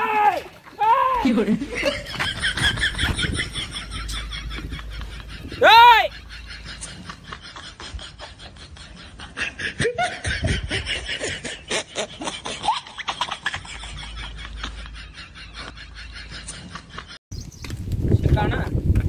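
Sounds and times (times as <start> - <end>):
man laughing: 1.2 - 17.2
wind rumble on microphone: 1.7 - 8.2, 10.2 - 11.1, 17.4 - 19.0.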